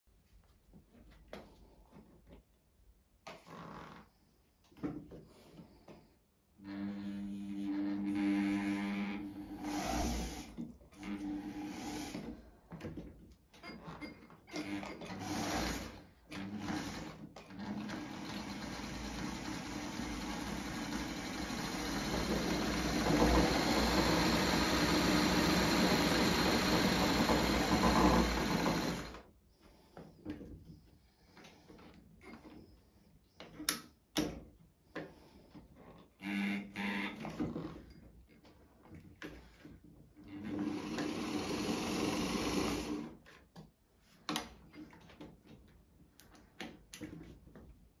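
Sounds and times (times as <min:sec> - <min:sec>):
sewing machine running: 0:07.7 - 0:12.2, 0:14.6 - 0:29.2, 0:40.3 - 0:43.1.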